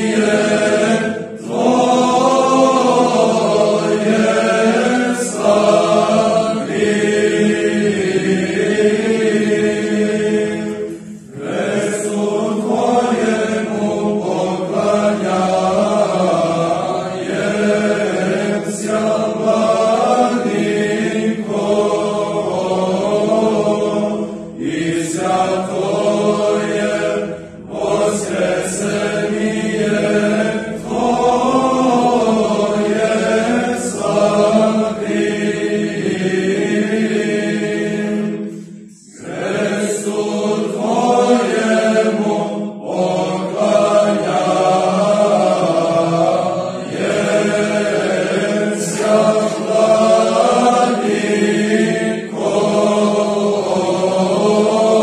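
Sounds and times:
male choir chanting a cappella: 0:00.0 - 0:55.0.

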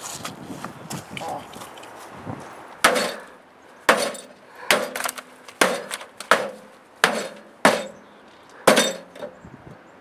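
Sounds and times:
hammer striking metal casing: 0:02.8 - 0:03.3, 0:03.9 - 0:08.0, 0:08.6 - 0:09.3.

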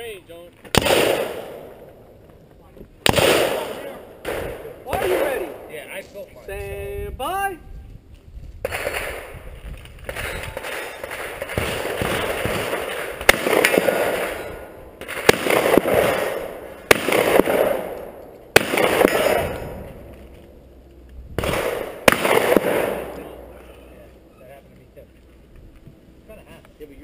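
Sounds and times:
gunshots with rolling echo: 0:00.6 - 0:02.3, 0:03.0 - 0:06.3, 0:08.6 - 0:24.3.

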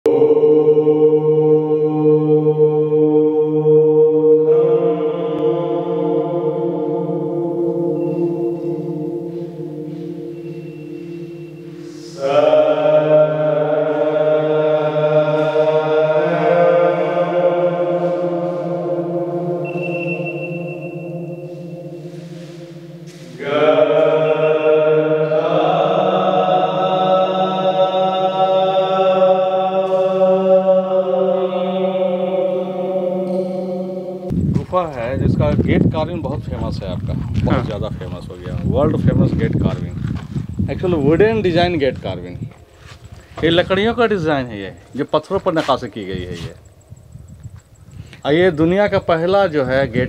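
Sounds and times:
chanted droning mantra: 0:00.1 - 0:40.1.

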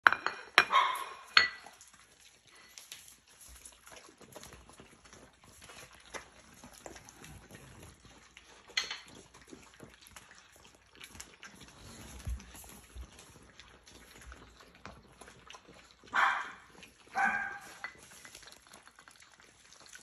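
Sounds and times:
bowl clinking: 0:00.0 - 0:01.8, 0:08.7 - 0:09.2
dogs chewing and licking: 0:00.4 - 0:20.0.

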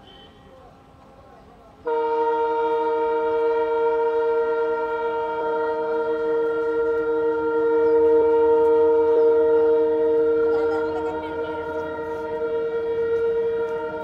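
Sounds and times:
train horn blast: 0:00.0 - 0:00.5, 0:01.8 - 0:14.0.

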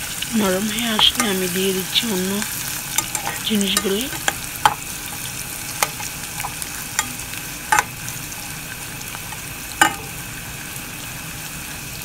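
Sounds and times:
onions sizzling in hot oil: 0:00.0 - 0:12.0
spatula knocking against pan: 0:05.8 - 0:08.0, 0:09.8 - 0:10.1.

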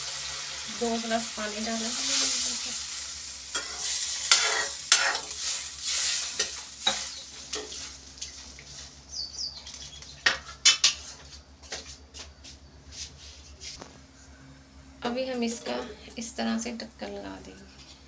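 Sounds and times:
sizzling hiss: 0:00.0 - 0:09.2
metal ladle scraping pan: 0:03.6 - 0:08.0.

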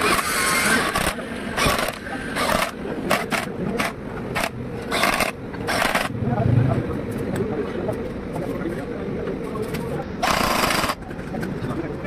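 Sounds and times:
impact wrench bursts: 0:00.0 - 0:06.1, 0:10.2 - 0:11.0.

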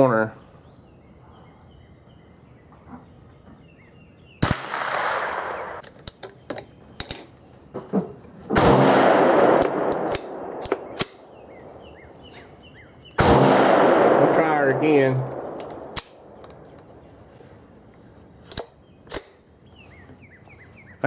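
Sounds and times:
rifle shots: 0:04.4 - 0:05.8, 0:08.5 - 0:11.4, 0:13.2 - 0:16.4
metallic clicks of rifle action: 0:05.8 - 0:07.3, 0:18.4 - 0:19.4.

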